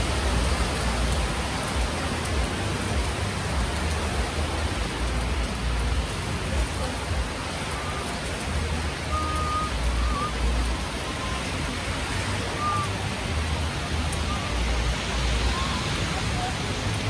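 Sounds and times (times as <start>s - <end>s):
steady rain falling: 0.0s - 17.0s
faint short whistles: 9.1s - 10.4s, 12.4s - 13.0s.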